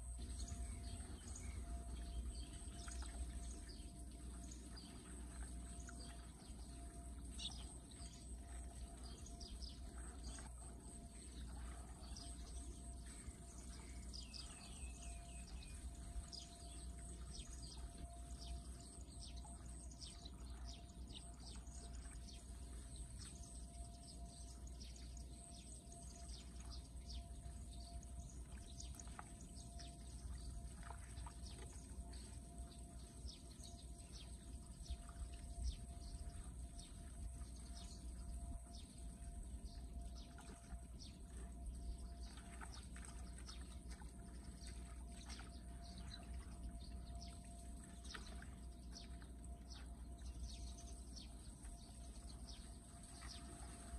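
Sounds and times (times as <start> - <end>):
bird chirps: 11.3 - 22.5.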